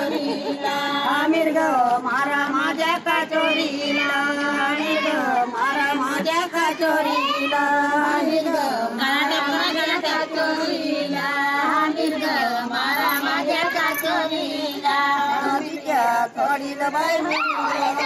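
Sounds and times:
high-pitched voice singing: 6.8s - 7.8s, 17.2s - 18.0s.

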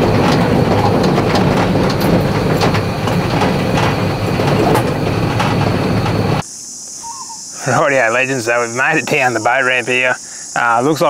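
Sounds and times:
body rattles and knocks: 0.0s - 6.4s
truck engine drone: 0.0s - 6.5s.

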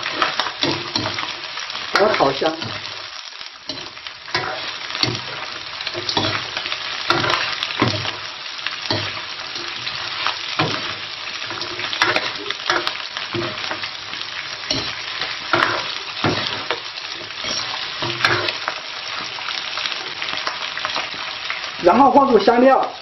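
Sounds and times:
food sizzling in oil: 0.0s - 23.0s
metal ladle scraping wok: 3.7s - 8.2s, 14.7s - 18.6s.

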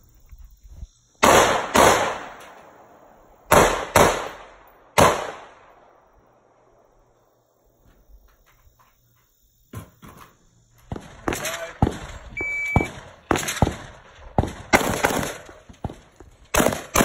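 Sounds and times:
gunshots with echoing tail: 1.2s - 2.5s, 3.5s - 5.8s, 12.8s - 17.0s.

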